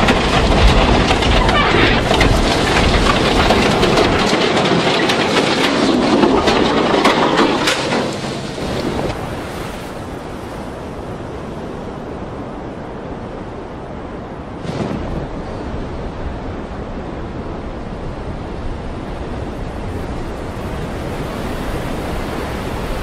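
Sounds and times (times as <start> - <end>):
steel crashing and cracking: 0.0 - 9.2
wind and sea noise: 0.0 - 23.0.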